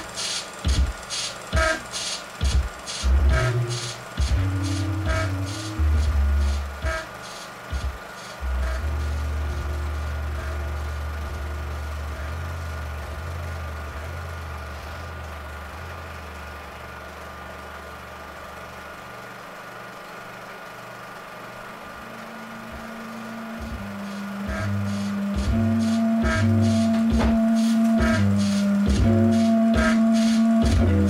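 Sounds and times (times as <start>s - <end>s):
hiss: 0.0s - 9.4s, 23.6s - 31.0s
low bass drone: 3.0s - 7.0s, 8.4s - 17.5s, 21.9s - 31.0s
higher held synth note: 22.0s - 31.0s.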